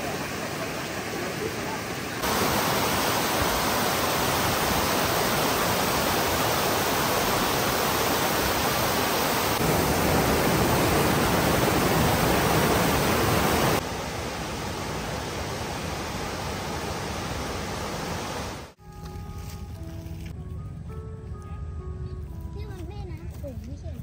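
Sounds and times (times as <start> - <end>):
stream pouring over rocks: 0.0 - 18.8
waterfall rushing: 0.0 - 18.8.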